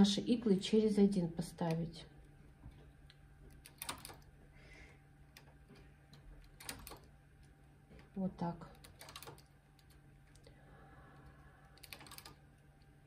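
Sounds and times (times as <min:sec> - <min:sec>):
knitting machine needles clicking: 0:02.7 - 0:04.3, 0:05.3 - 0:10.5, 0:11.7 - 0:12.9.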